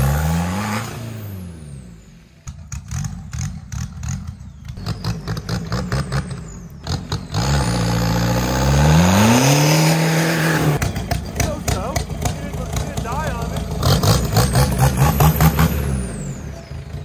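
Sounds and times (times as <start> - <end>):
diesel engine running and revving: 0.0 - 17.0.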